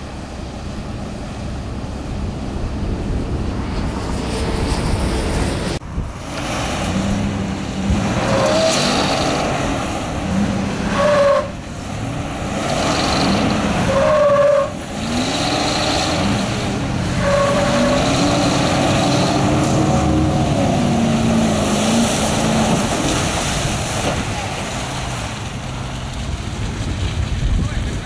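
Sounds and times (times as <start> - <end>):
truck engine revving: 0.0 - 27.1
mud and water splashing: 6.1 - 28.0
wheels spinning in mud: 12.0 - 28.0.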